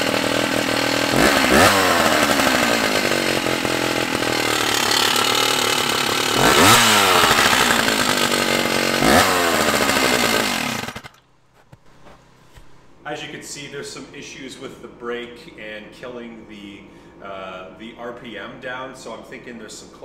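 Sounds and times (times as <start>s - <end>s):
chainsaw idling and revving: 0.0s - 11.3s.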